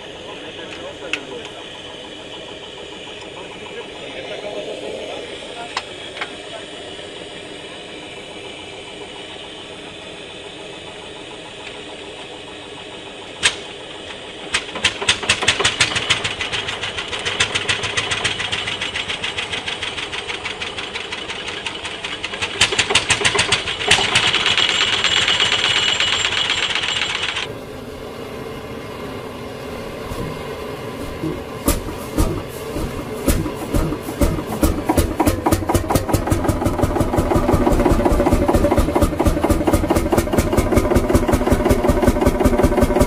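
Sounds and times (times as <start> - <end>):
engine firing with sharp bang: 13.3 - 27.5, 30.1 - 43.0
engine exhaust pops: 13.4 - 25.3, 31.1 - 43.0.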